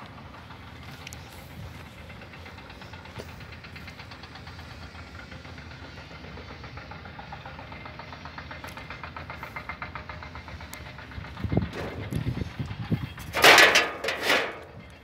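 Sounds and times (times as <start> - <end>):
machine rattling: 6.6 - 15.0
low rumble: 10.2 - 15.0.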